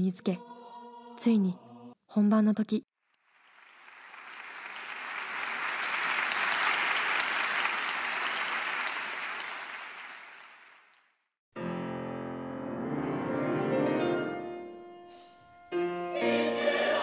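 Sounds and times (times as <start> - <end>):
audience applause: 3.2 - 11.3
grand piano accompaniment: 11.5 - 17.0.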